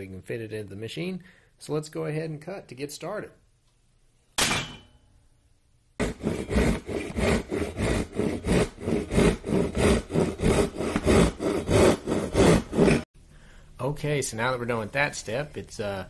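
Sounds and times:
hand saw cutting wood: 6.0 - 13.1.

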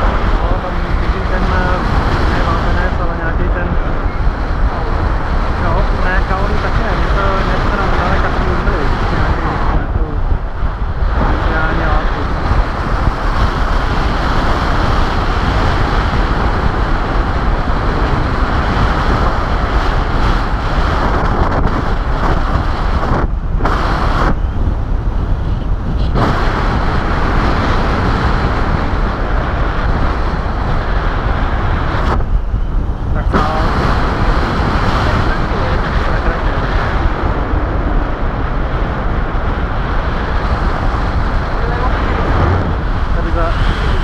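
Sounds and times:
wind buffeting microphone: 0.0 - 44.0.

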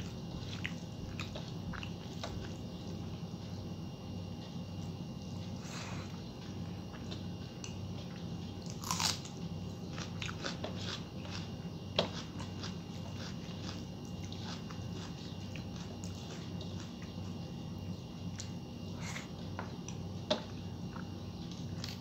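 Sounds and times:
chewing and biting: 0.0 - 3.1, 6.4 - 17.4
steady low hum: 0.0 - 22.0.

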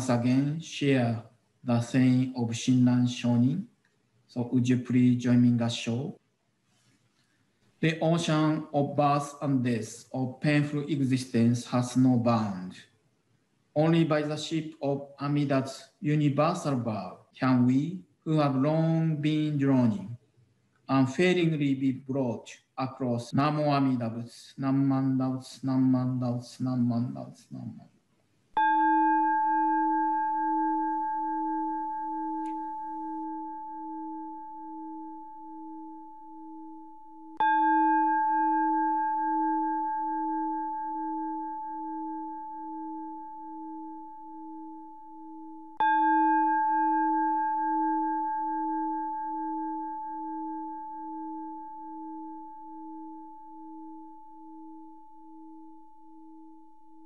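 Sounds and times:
temple bell ringing: 28.6 - 56.3.

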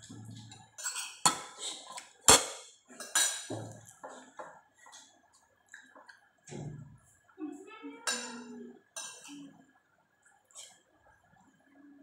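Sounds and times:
cutlery and dishes clinking: 0.0 - 4.5.

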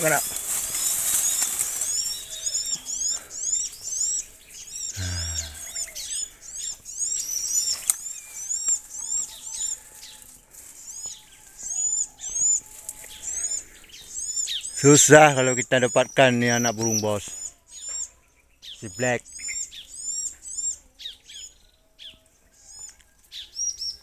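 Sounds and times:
bird chirping: 0.0 - 24.0.

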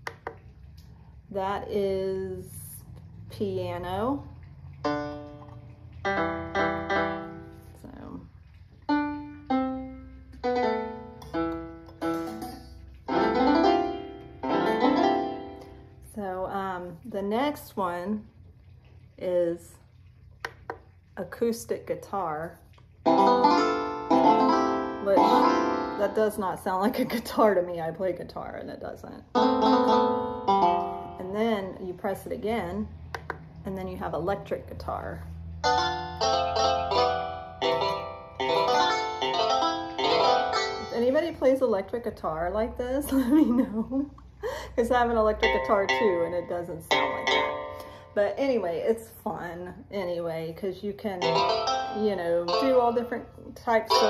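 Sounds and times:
piano-like kalimba notes: 4.8 - 16.0, 23.0 - 26.4, 29.3 - 31.4, 35.6 - 41.4, 45.3 - 48.3, 51.2 - 54.0.

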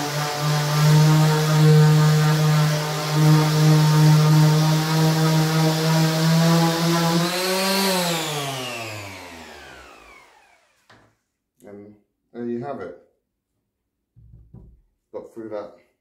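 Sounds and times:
orbital sander motor humming: 0.0 - 10.9
motor winding down whine: 7.2 - 10.9.

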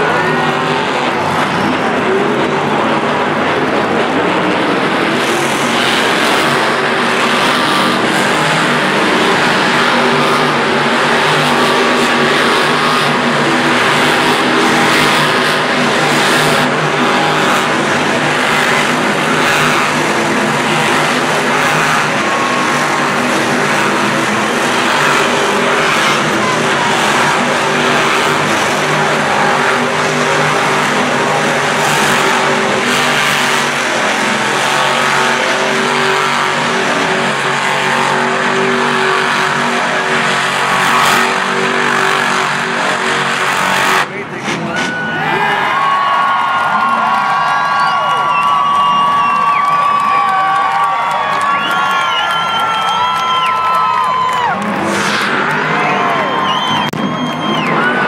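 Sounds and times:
monster truck engines revving: 0.0 - 58.0.

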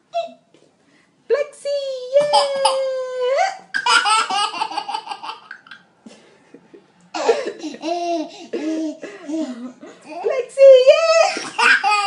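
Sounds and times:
baby giggling: 2.2 - 5.8, 7.2 - 10.2, 11.2 - 12.0.

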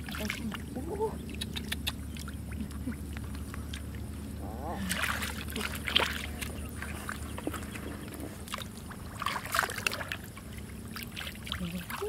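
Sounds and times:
hands splashing in muddy water: 4.8 - 10.3.

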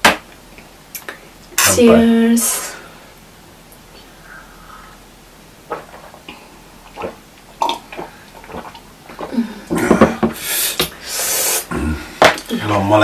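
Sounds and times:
people sipping and swallowing: 5.6 - 12.5.

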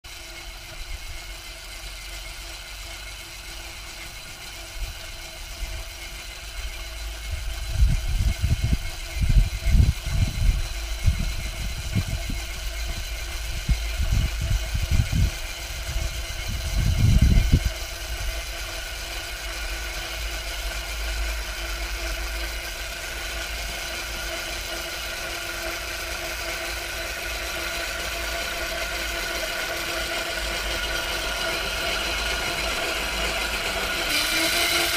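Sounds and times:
electric cultivator whine: 0.1 - 34.9
low churning rumble: 6.6 - 19.1.

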